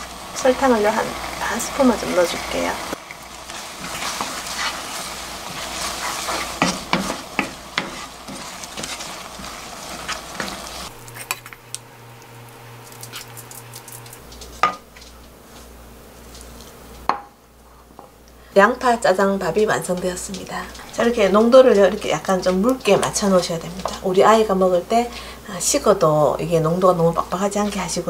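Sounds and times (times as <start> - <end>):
wooden spatula scraping a wok: 0.0 - 11.6
sauce sizzling in a wok: 0.0 - 14.8, 18.5 - 28.0.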